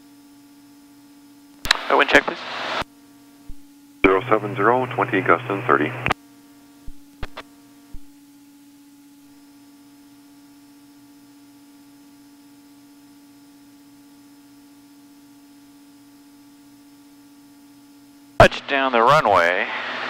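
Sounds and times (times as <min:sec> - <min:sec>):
airplane engine drone: 0:04.0 - 0:06.2, 0:18.4 - 0:20.0.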